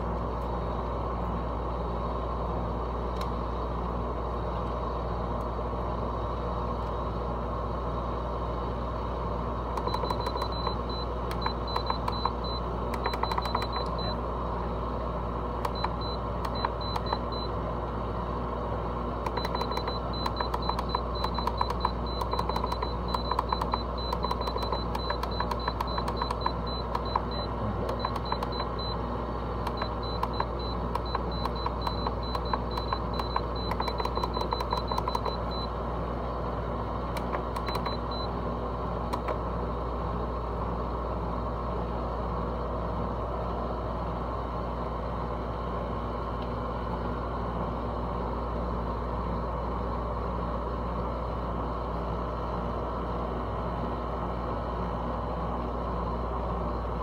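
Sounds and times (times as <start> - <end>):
air conditioner humming: 0.0 - 57.0
rapid ticking with high chirps: 9.8 - 12.4, 13.0 - 14.1, 19.3 - 28.9, 29.7 - 35.4.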